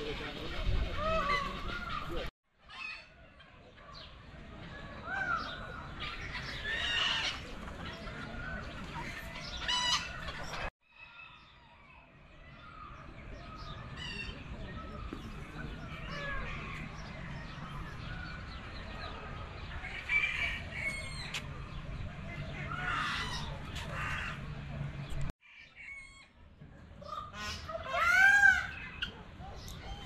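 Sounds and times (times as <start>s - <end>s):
bird calls: 0.0s - 26.2s, 26.8s - 30.0s
chickens clucking: 5.4s - 10.7s
roosters crowing: 19.6s - 21.4s.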